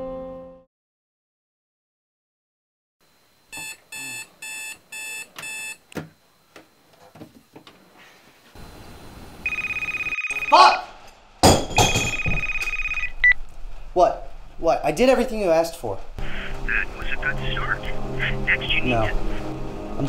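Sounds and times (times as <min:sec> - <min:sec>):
alarm clock beeping: 0:03.6 - 0:05.8, 0:09.5 - 0:10.8, 0:12.0 - 0:13.4
telephone ringing: 0:09.4 - 0:10.8, 0:12.0 - 0:13.4.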